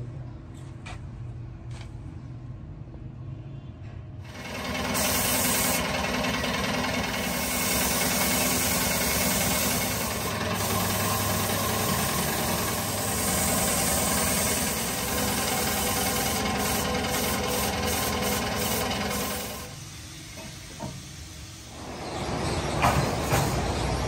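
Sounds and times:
paint spray gun hissing: 4.3s - 21.8s.

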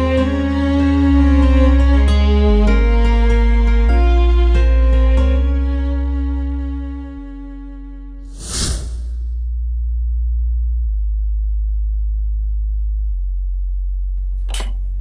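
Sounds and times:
deep bass drone: 0.0s - 15.0s
swoosh hit: 8.3s - 9.4s.

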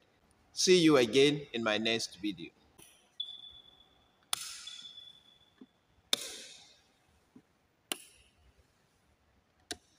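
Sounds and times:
faint high whine: 2.8s - 6.0s.

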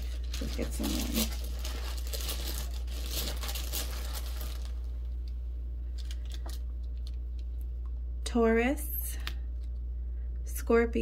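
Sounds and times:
hand rummaging in bag of charms: 0.0s - 4.9s
steady low hum: 0.0s - 11.0s.

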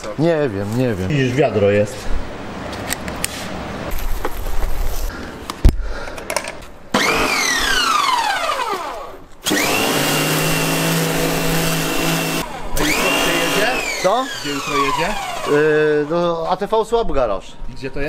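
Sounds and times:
pressure washer motor whining: 7.0s - 16.4s.

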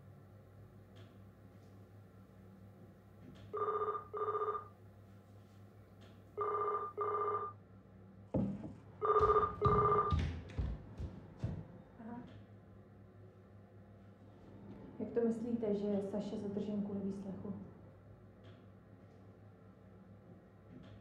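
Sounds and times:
telephone ringing: 3.5s - 4.7s, 6.4s - 7.6s, 9.0s - 10.2s.

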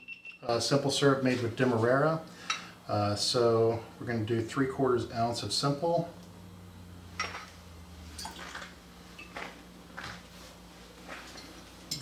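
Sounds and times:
glassware and bar tools clinking: 11.3s - 12.0s.

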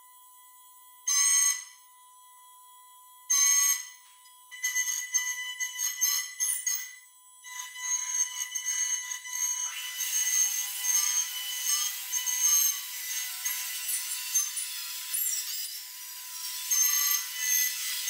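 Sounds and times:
spindle cutter routing wood: 7.5s - 18.0s.

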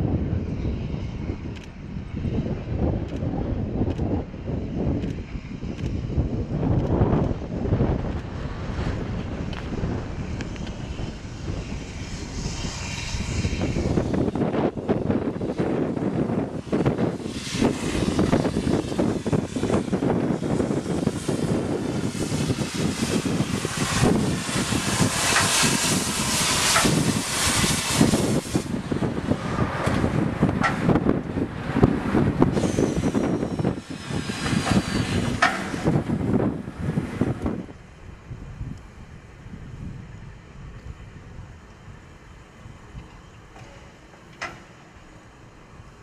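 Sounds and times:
steam locomotive rumbling past: 0.0s - 46.0s
steam hiss: 7.8s - 38.0s.

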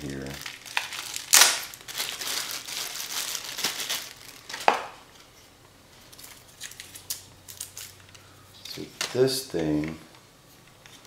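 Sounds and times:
packaging rustling and crinkling: 0.0s - 5.0s.

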